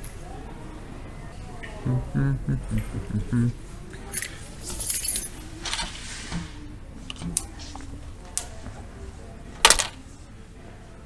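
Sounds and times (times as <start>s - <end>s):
metal nuts and bolts clinking: 4.1s - 5.4s.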